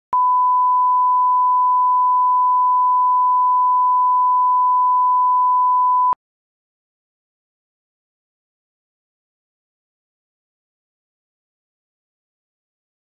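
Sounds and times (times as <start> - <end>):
steady pure test tone beep: 0.2 - 6.2.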